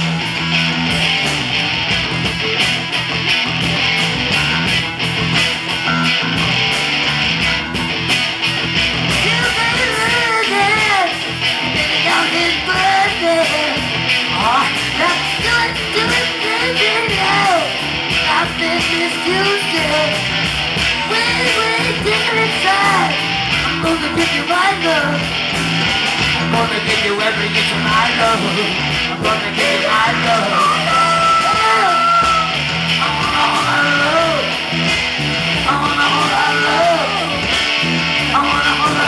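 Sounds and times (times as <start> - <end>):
bass guitar: 0.0 - 39.0
electric guitars: 0.0 - 39.0
person singing: 9.2 - 20.2, 21.0 - 25.2, 26.4 - 34.7, 35.6 - 39.0
drum beat: 29.2 - 39.0.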